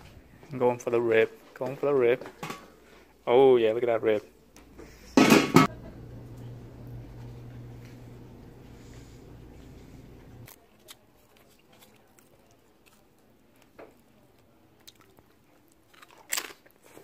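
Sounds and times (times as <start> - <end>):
low steady hum: 4.4 - 10.5
biting food: 10.4 - 17.0.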